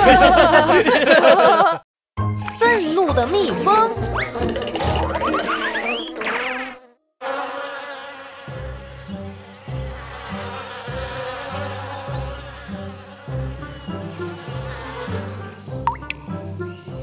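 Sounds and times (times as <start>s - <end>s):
bees buzzing: 4.0s - 16.8s.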